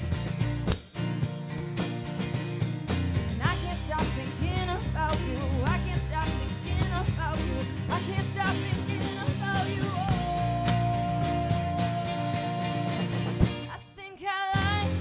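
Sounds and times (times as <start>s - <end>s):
rock band playing: 0.0s - 13.7s, 14.6s - 15.0s
woman singing lead: 3.4s - 15.0s.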